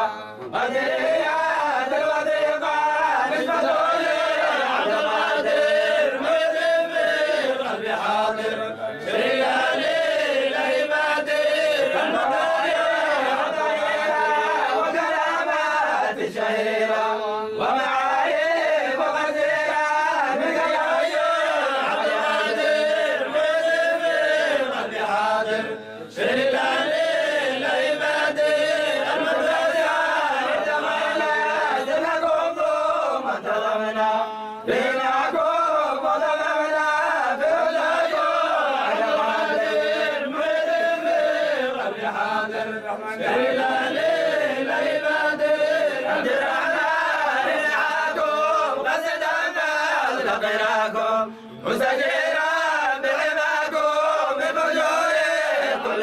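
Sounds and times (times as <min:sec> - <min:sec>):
men chanting together: 0:00.0 - 0:56.0.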